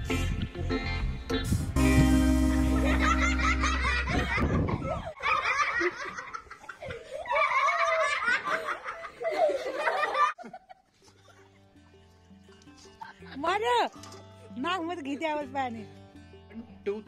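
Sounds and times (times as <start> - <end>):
children and man laughing: 2.5 - 11.6.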